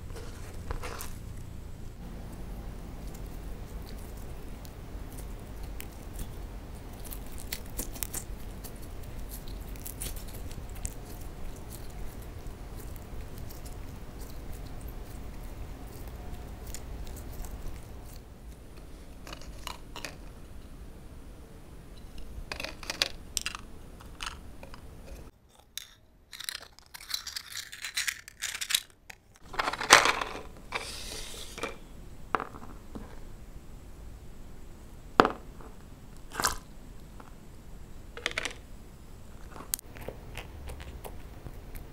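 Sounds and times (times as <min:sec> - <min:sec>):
low hum: 0:00.0 - 0:07.5
rustling: 0:00.0 - 0:20.6, 0:26.3 - 0:33.4
slime crackling and popping: 0:03.2 - 0:18.2
toy pieces clicking: 0:22.5 - 0:24.8, 0:25.5 - 0:30.4.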